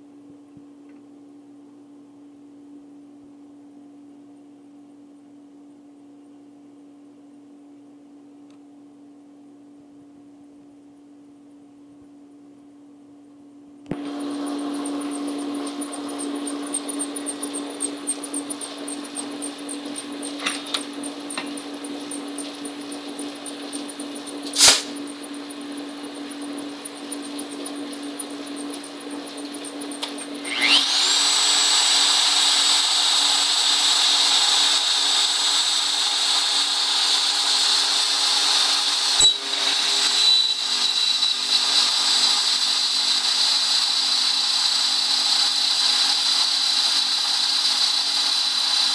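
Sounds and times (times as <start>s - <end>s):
machine hum: 13.8s - 32.3s
router motor whining: 13.9s - 48.9s
sharp click: 24.4s - 25.0s.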